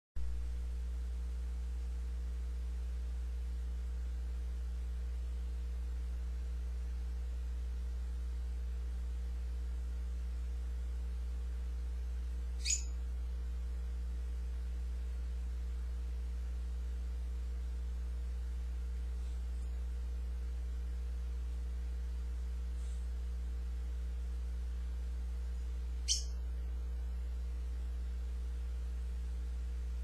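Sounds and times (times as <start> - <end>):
steady low hum: 0.2 - 30.0
parrot chirp: 12.6 - 13.0, 26.0 - 26.4.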